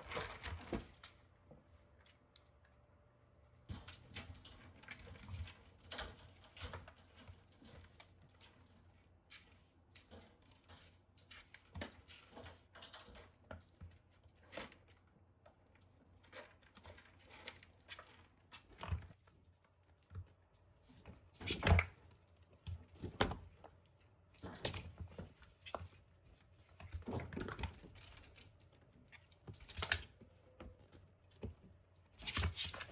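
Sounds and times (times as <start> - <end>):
paws clicking in wire cage: 3.7 - 15.6.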